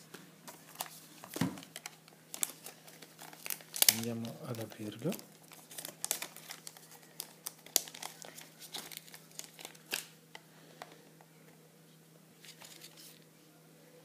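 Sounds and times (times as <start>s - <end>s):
plastic wrapping crinkling and tearing: 0.7s - 10.2s.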